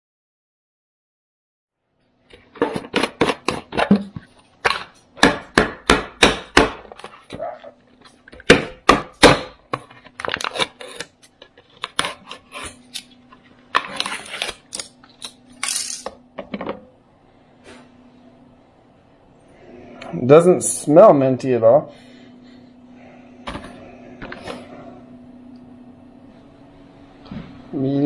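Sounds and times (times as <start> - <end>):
faint steady hum: 1.8 - 28.0
packaging rustling: 9.8 - 16.0.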